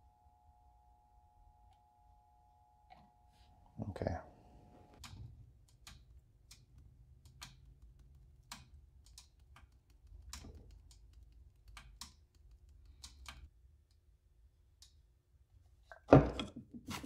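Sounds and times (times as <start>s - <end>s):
faint low hum: 0.0s - 16.4s
light clicks and taps: 5.0s - 14.0s.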